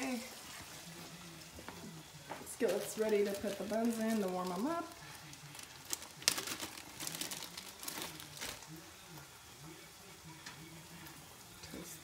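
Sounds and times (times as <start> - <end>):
faint voices: 0.0 - 12.0
plastic bag crinkling: 2.5 - 8.8.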